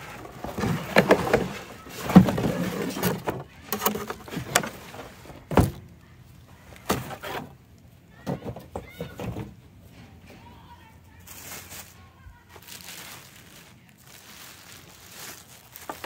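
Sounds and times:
packaging scraping and rustling: 0.0s - 5.8s, 6.8s - 7.6s, 11.2s - 16.0s
cardboard box knocks and thumps: 0.4s - 3.4s.

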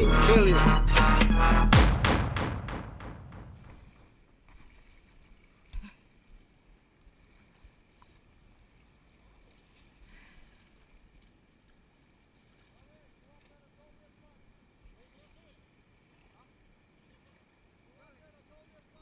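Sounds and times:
dull thump: 1.7s - 4.0s
faint water: 3.8s - 19.0s.

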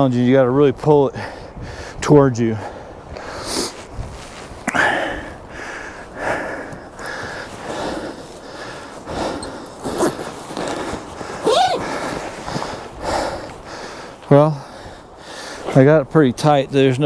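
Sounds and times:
heavy canvas tent rustling: 3.7s - 4.6s, 7.3s - 13.8s.

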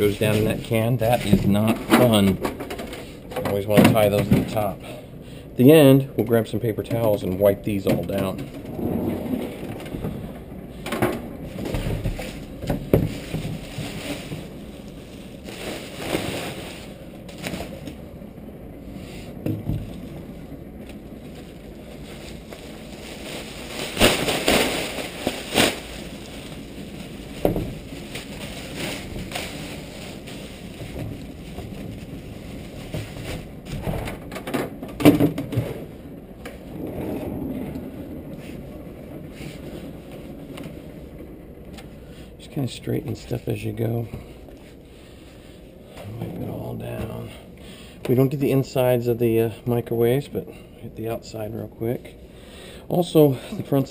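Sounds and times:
plastic bin liner rustling: 0.0s - 4.8s, 7.7s - 18.0s, 18.9s - 41.2s
knocks and bumps of handling: 10.8s - 14.6s, 27.3s - 32.1s.

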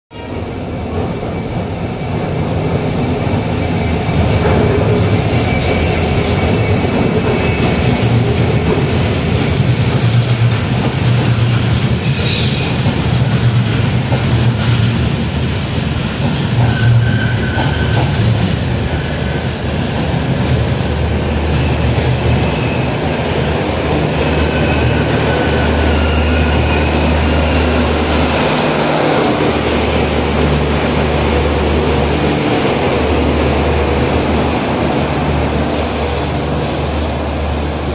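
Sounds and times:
train rumbling: 0.1s - 37.9s
high wheel squeals: 16.7s - 18.2s, 24.0s - 28.6s.

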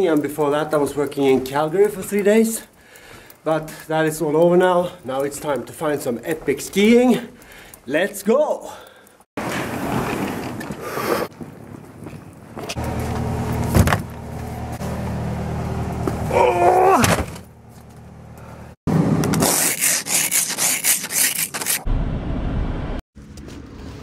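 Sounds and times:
bags rustling and scraping: 9.4s - 14.1s
car engine humming: 12.8s - 16.8s, 17.4s - 18.8s.

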